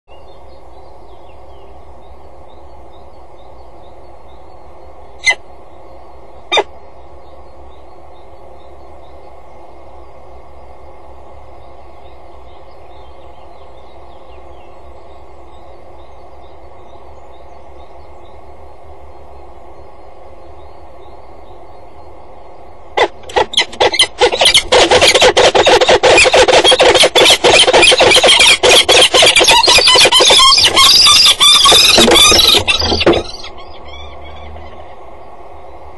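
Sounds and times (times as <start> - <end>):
background hum and hiss: 0.1 - 35.9
distant songbirds chirping: 0.1 - 35.9
sharp bird calls: 5.2 - 9.2, 19.8 - 35.9.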